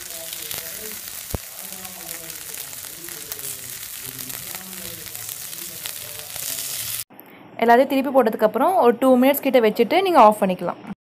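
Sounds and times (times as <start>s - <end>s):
oil sizzling in a pan: 0.0s - 7.1s.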